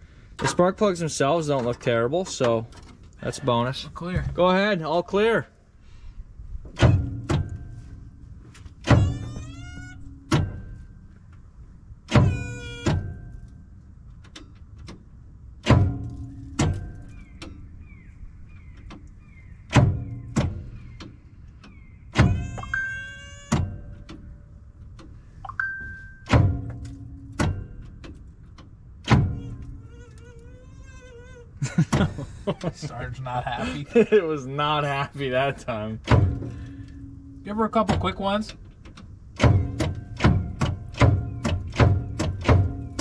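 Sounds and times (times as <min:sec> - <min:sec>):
starter motor clunks: 0:36.0 - 0:43.0.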